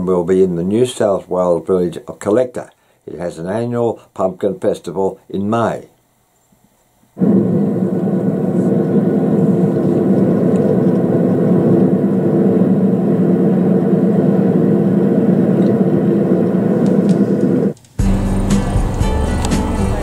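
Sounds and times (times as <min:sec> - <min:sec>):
car engine drone: 0:07.2 - 0:20.0.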